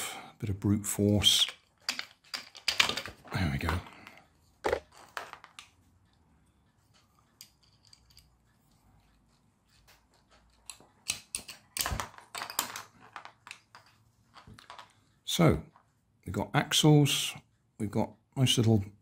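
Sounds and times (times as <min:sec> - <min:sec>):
plastic gearbox parts clicking: 0:01.4 - 0:05.7.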